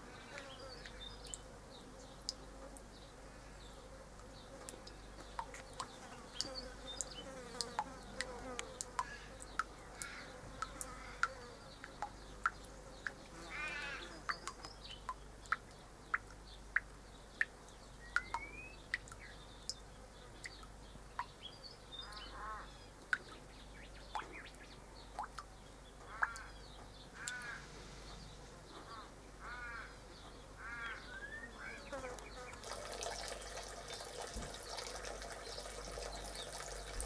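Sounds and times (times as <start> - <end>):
water dripping into stone basin: 0.4 - 1.5, 4.7 - 22.3, 22.9 - 27.5, 32.5 - 37.0
birds calling: 25.9 - 37.0.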